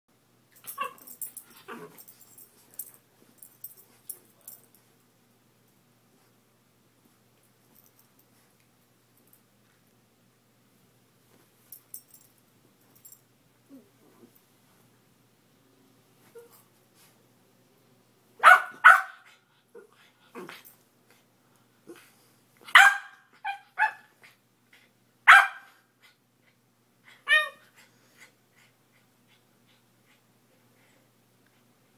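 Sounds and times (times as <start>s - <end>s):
puppy barking: 18.4s - 19.3s, 22.7s - 24.1s, 25.3s - 25.8s.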